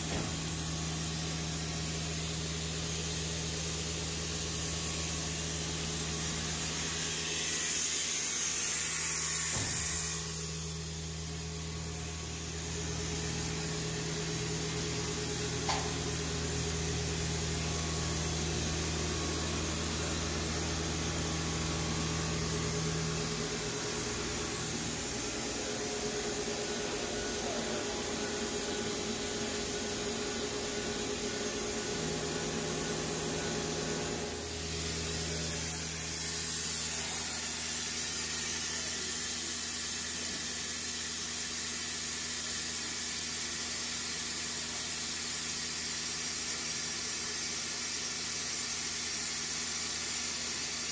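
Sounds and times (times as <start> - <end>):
faint machinery whine: 0.0 - 47.8
low machinery drones: 1.9 - 39.4.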